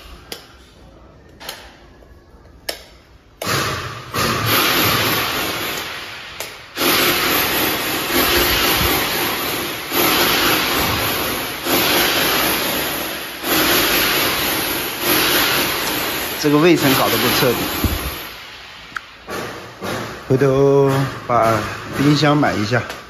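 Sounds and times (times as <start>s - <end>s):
power drill boring into wall: 3.4s - 6.0s, 6.8s - 18.3s.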